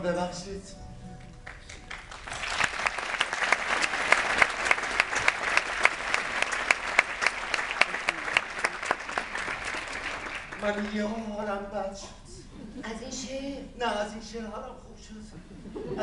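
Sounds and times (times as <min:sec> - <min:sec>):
sharp close hand claps: 0:01.2 - 0:10.9
audience applauding: 0:01.2 - 0:11.1.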